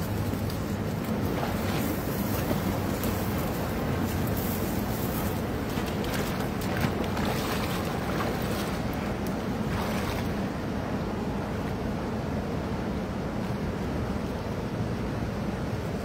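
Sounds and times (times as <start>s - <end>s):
splashes of wading: 0.0s - 10.7s
wind buffeting microphone: 0.0s - 11.5s
flowing river rushing: 0.0s - 16.0s.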